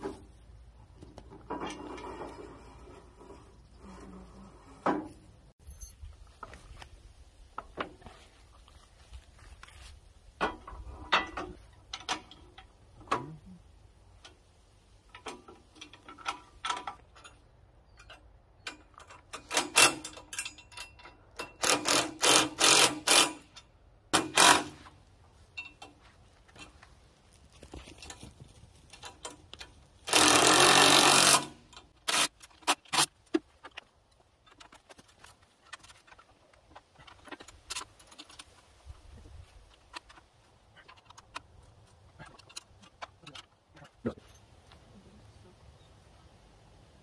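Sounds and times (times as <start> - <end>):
metal parts clinking and knocking: 15.0 - 24.8.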